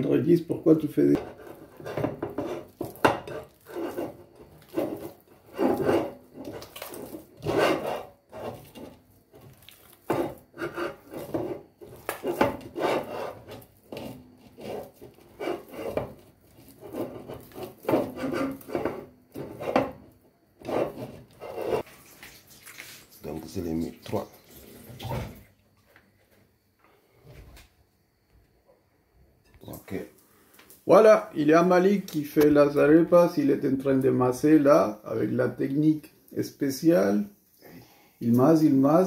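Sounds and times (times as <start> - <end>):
hands kneading moist dough: 8.5 - 12.4.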